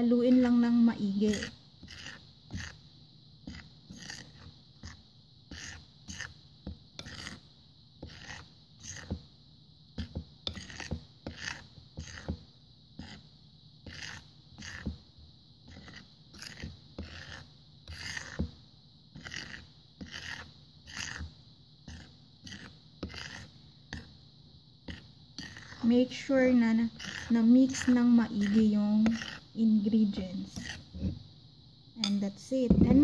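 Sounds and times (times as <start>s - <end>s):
metal utensil scraping ceramic bowl: 0.3s - 2.8s, 3.5s - 5.0s, 7.0s - 7.4s, 10.0s - 12.3s, 15.7s - 18.4s, 19.2s - 21.2s, 24.9s - 29.4s, 30.1s - 31.1s.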